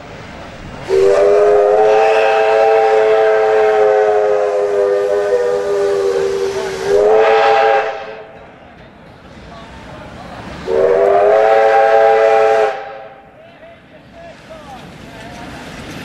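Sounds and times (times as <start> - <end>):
steam locomotive whistle blast: 0.8 - 8.4, 10.7 - 13.2.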